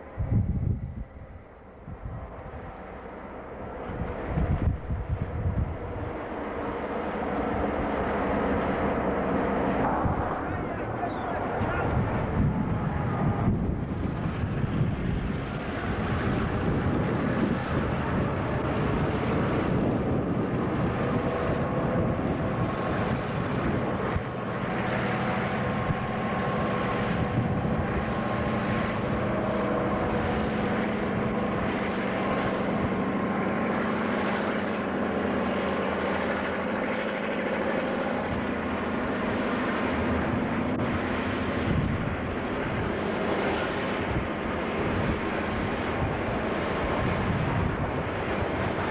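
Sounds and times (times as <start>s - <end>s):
locomotive engines running: 0.0s - 48.9s.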